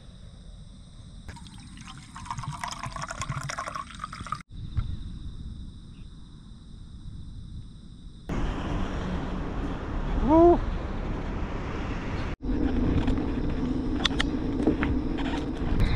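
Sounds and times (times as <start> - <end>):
drink pouring into metal mug: 1.3 - 4.5.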